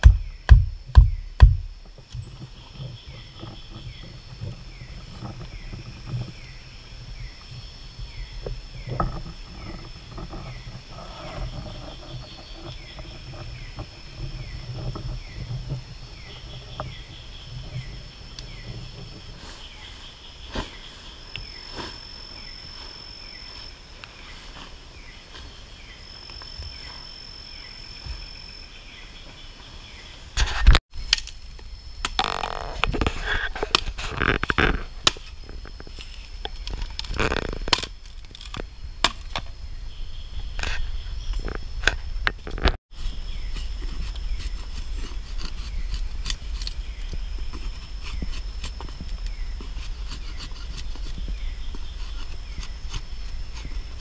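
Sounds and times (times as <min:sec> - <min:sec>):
loud thump: 0:00.0 - 0:01.8
insects buzzing: 0:00.0 - 0:54.0
insect falling chirp: 0:31.0 - 0:39.6.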